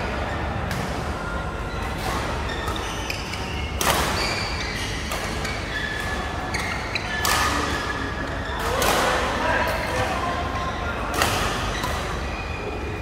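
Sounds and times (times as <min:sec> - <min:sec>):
indoor hall noise: 0:00.0 - 0:13.0
shoes squeaking on court: 0:01.2 - 0:09.1.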